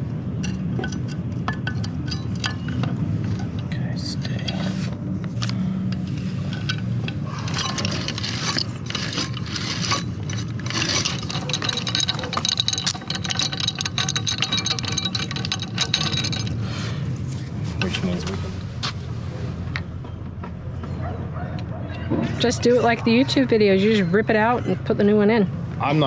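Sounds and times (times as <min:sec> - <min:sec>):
steady low hum: 0:00.0 - 0:21.3
metal tools scraping and clinking: 0:00.4 - 0:18.5.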